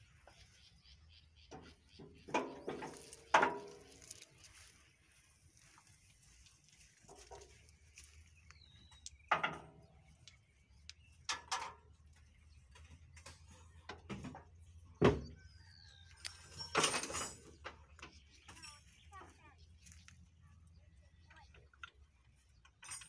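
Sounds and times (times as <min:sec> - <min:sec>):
metal knocks and clanks: 0:01.5 - 0:04.2, 0:09.3 - 0:10.0, 0:16.4 - 0:18.7.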